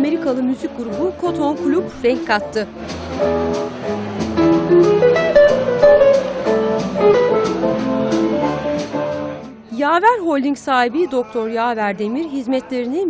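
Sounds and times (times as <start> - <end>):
bass: 0.0 - 9.7
plucked guitar melody: 0.0 - 9.7.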